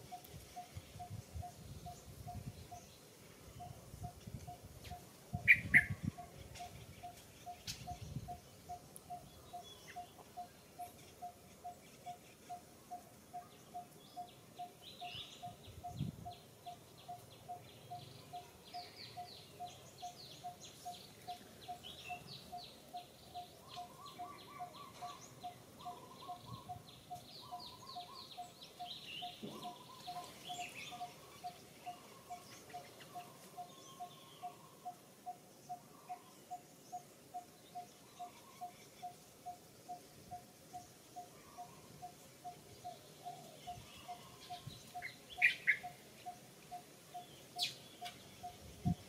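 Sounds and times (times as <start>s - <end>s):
birds chirping rapidly: 5.4s - 12.6s, 35.7s - 49.0s.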